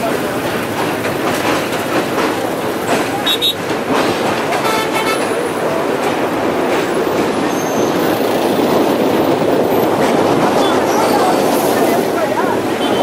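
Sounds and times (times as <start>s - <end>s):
train rolling over bridge: 0.0s - 13.0s
wind on microphone: 5.3s - 13.0s.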